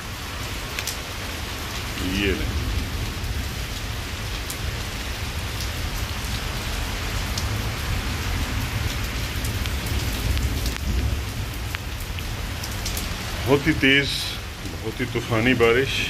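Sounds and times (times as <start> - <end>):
heavy rain pouring: 0.0 - 16.0
hailstones ticking: 8.4 - 16.0.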